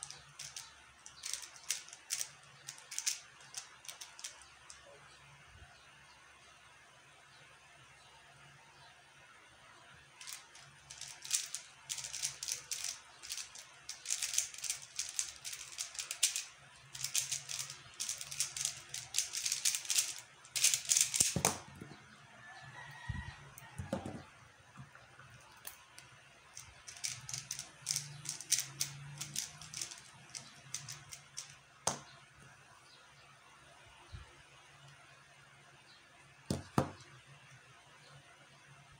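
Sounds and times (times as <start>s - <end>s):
puzzle cube clicking as turned: 0.0s - 4.8s, 10.2s - 21.7s, 26.6s - 32.0s.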